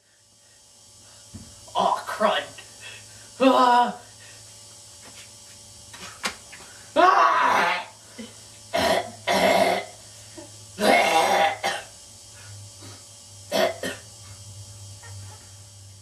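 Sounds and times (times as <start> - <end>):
person coughing and throat-clearing: 8.2 - 9.9, 10.8 - 11.9, 13.5 - 14.0.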